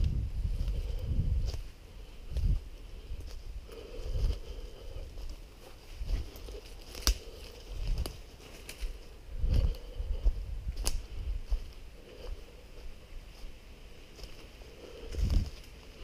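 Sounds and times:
footsteps crunching through leaves: 0:01.4 - 0:16.0
twig snapping: 0:06.8 - 0:07.3, 0:10.8 - 0:11.1.

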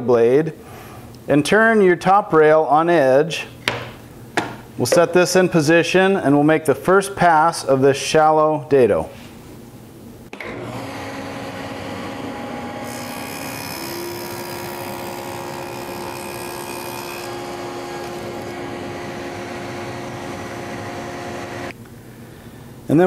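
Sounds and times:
table saw running: 0:10.4 - 0:21.7.

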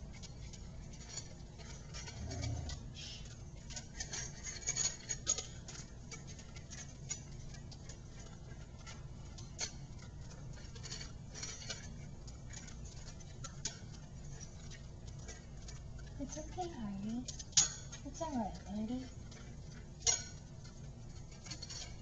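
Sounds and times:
puppy crunching kibble in metal bowl: 0:00.0 - 0:22.0.

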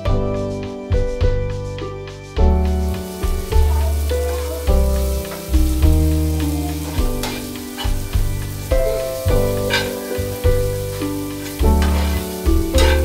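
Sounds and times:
background music: 0:00.0 - 0:13.0
food sizzling in a pan: 0:02.5 - 0:13.0
spatula scraping a pan: 0:06.7 - 0:13.0.

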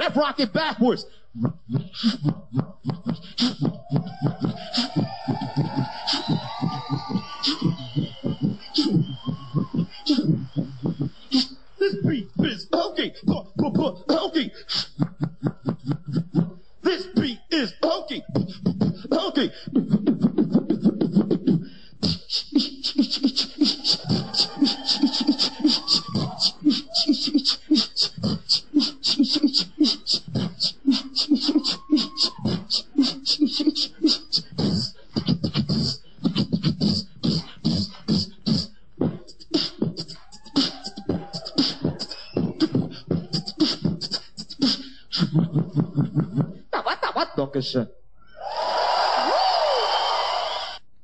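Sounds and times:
short pitched vocal sounds: 0:00.0 - 0:15.3, 0:15.9 - 0:46.7
beatboxing kick and snare clicks: 0:01.4 - 0:12.6, 0:18.3 - 0:19.1, 0:19.8 - 0:45.8.

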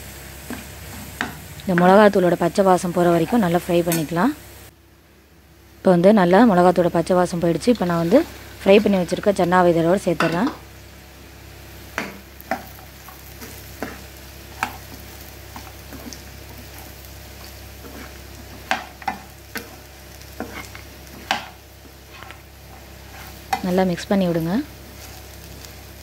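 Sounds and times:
low sizzle: 0:00.0 - 0:26.0
ladle scraping a pan: 0:20.4 - 0:23.6.

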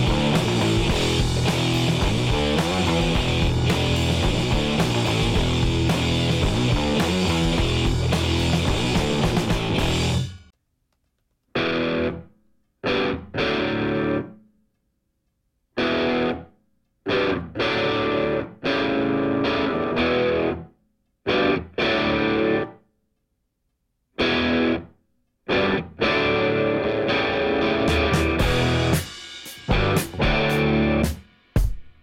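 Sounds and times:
distorted electric guitar chords: 0:00.0 - 0:10.5, 0:11.6 - 0:14.4, 0:15.8 - 0:16.5, 0:17.1 - 0:20.7, 0:21.3 - 0:22.8, 0:24.2 - 0:24.9, 0:25.5 - 0:31.2.

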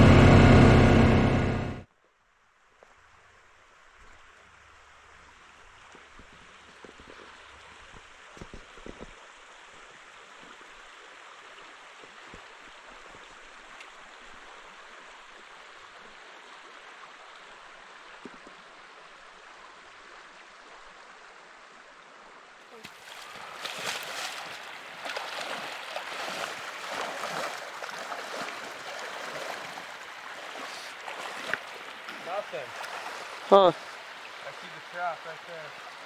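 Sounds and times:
soft low thumps: 0:00.0 - 0:01.8
creek water running: 0:02.7 - 0:36.0.

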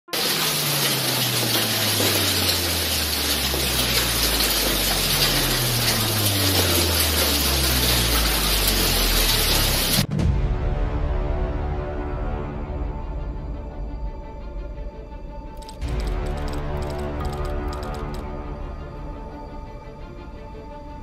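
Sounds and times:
hail and rain pouring: 0:00.1 - 0:10.1
music: 0:00.1 - 0:21.0.

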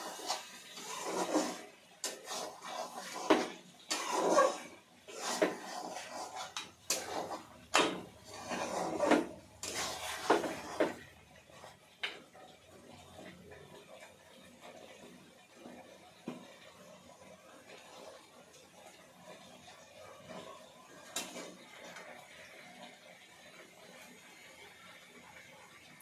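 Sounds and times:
spoon scraping metal pot: 0:00.0 - 0:11.1.

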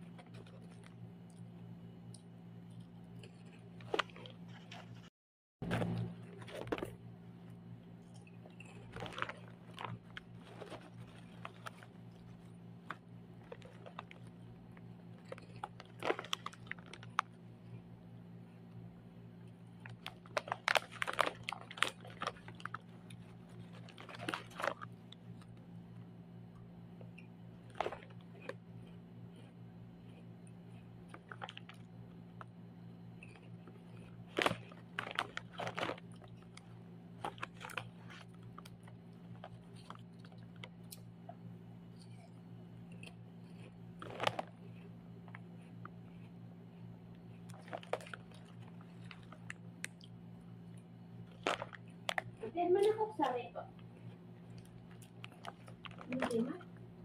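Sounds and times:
low hum: 0:00.0 - 0:57.0
plastic snack bag crinkling: 0:03.2 - 0:07.0, 0:08.1 - 0:17.5, 0:19.7 - 0:25.6, 0:27.6 - 0:28.6, 0:31.1 - 0:32.5, 0:33.2 - 0:41.1, 0:42.9 - 0:46.2, 0:47.4 - 0:50.1, 0:51.2 - 0:53.4, 0:54.0 - 0:56.7.

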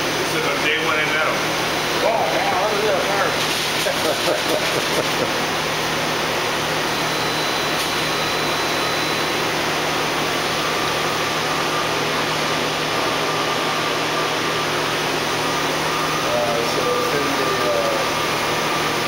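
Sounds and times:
faint high whine: 0:06.9 - 0:09.6.

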